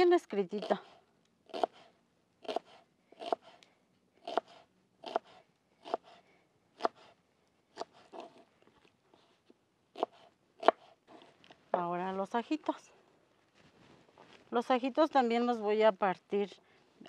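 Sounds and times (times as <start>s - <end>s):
knife cutting onion on board: 2.5s - 3.6s, 4.2s - 6.2s, 6.8s - 7.1s, 10.0s - 11.3s.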